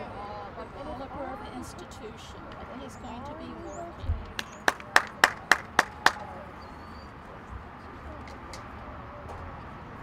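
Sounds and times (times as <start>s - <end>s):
person clapping: 4.4s - 6.2s.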